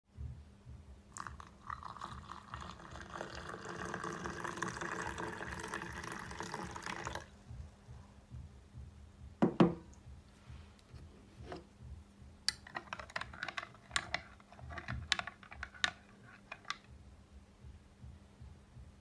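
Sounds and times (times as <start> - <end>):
water pouring into a glass mug: 1.1 - 7.3.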